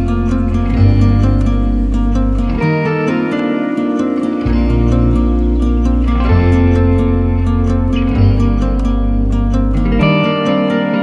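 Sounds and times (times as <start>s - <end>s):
low sustained bass note: 0.0s - 10.6s
gently plucked strings music: 0.0s - 11.0s.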